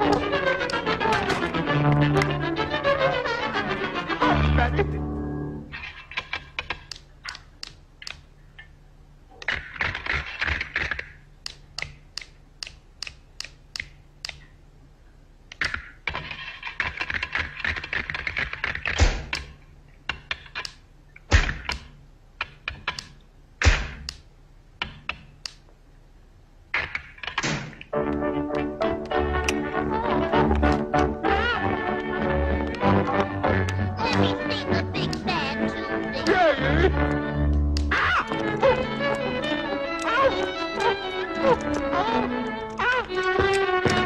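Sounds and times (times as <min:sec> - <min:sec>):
faint low hum: 0:00.0 - 0:44.0
false teeth clicking and clacking: 0:05.8 - 0:08.7, 0:09.3 - 0:14.6, 0:15.5 - 0:24.2, 0:31.9 - 0:44.0.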